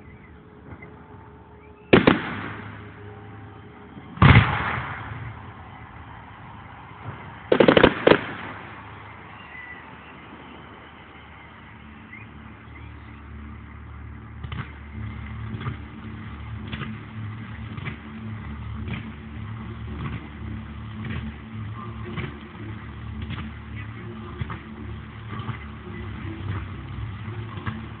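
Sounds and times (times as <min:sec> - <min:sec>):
low steady hum: 0:00.0 - 0:28.0
firework shells bursting: 0:07.1 - 0:09.0.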